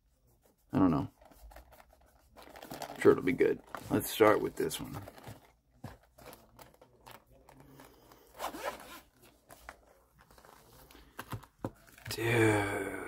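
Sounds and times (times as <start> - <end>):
zipper being pulled open: 8.2 - 9.2.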